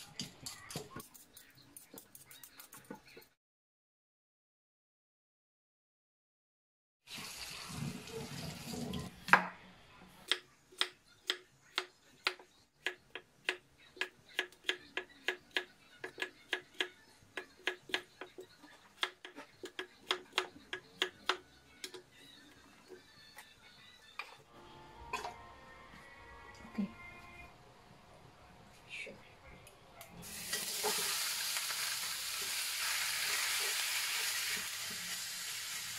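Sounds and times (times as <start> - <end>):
tap water running: 7.1 - 9.1, 30.2 - 35.9.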